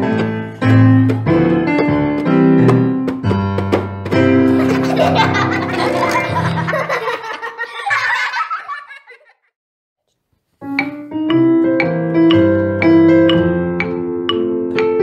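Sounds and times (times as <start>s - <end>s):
ragtime piano music: 0.0s - 7.5s, 10.6s - 15.0s.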